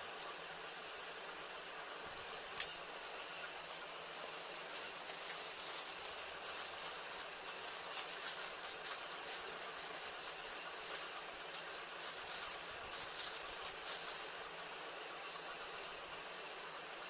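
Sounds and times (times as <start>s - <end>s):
background hiss: 0.0s - 17.0s
plastic bag crinkling: 4.0s - 14.6s.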